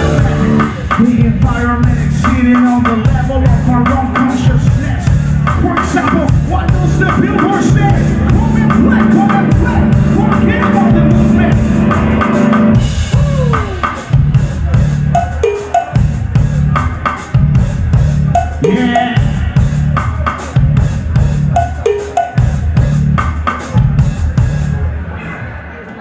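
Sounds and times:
distorted electric guitar bending notes: 0.0 - 0.9, 5.2 - 15.0
rock band playing: 0.0 - 25.0.

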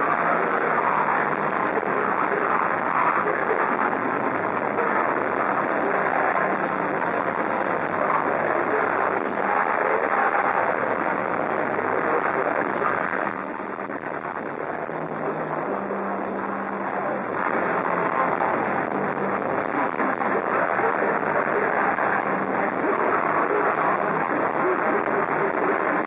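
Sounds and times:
metal band playing live: 0.0 - 26.0.

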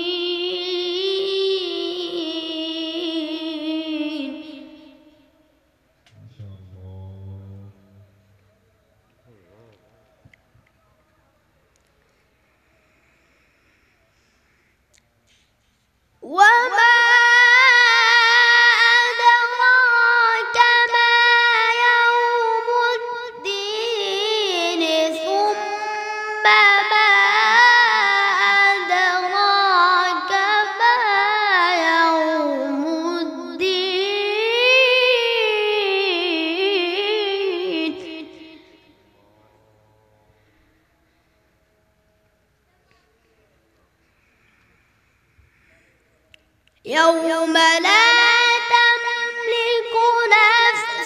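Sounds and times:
boy reciting melodically: 0.0 - 8.0, 16.2 - 39.0, 46.8 - 51.0.

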